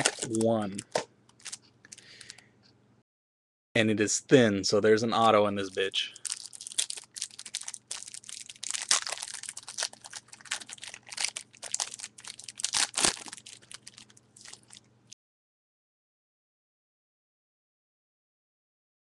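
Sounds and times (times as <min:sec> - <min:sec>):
card pack wrapper crinkling: 0:00.0 - 0:02.4, 0:05.6 - 0:14.8.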